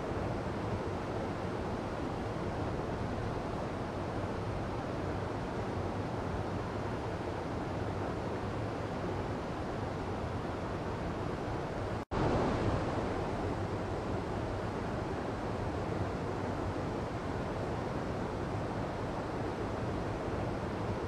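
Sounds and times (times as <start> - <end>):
stream rushing over boulders: 12.2 - 16.0.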